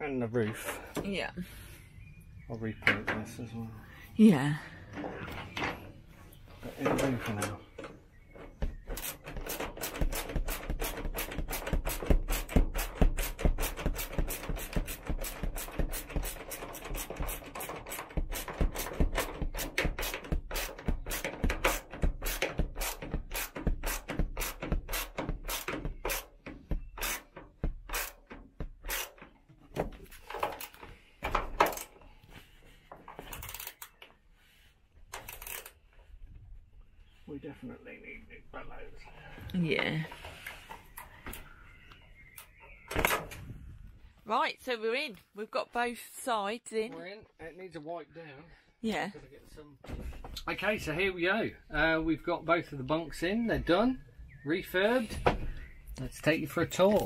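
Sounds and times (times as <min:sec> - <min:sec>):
hand ratchet clicking: 0:09.0 - 0:26.4, 0:27.9 - 0:29.2, 0:33.3 - 0:33.9, 0:35.2 - 0:35.7.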